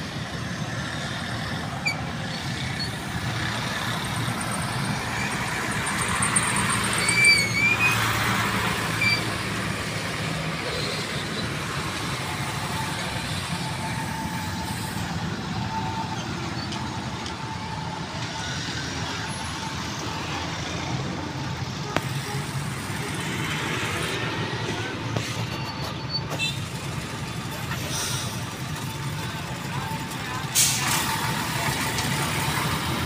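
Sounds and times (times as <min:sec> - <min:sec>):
diesel truck engines droning: 0:00.0 - 0:33.0
traffic noise: 0:00.0 - 0:33.0
high squeal: 0:01.6 - 0:21.0.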